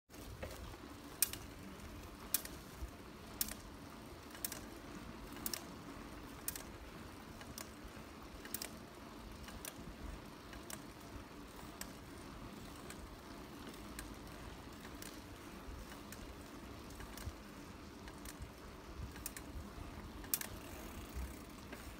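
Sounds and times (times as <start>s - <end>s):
bicycle tyres on wet pavement: 0.1s - 21.9s
sharp mechanical clicking: 1.2s - 1.5s, 2.2s - 2.7s, 3.3s - 3.7s, 4.3s - 4.7s, 6.3s - 8.8s, 13.8s - 21.9s.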